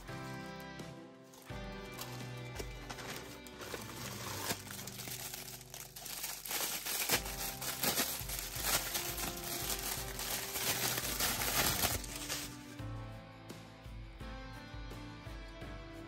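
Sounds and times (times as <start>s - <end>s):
background music: 0.0s - 16.0s
plastic bag crinkling: 1.3s - 12.8s.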